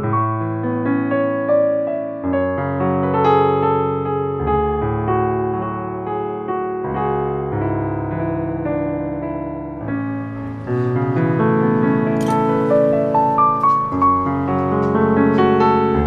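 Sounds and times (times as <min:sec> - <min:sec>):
soft electric piano music: 0:00.0 - 0:16.0.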